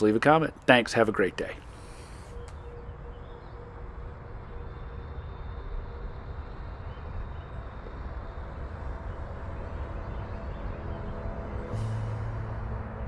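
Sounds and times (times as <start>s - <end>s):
distant electric model plane whine: 1.6s - 13.0s
wind rumbling on microphone: 1.6s - 13.0s
music: 9.2s - 13.0s.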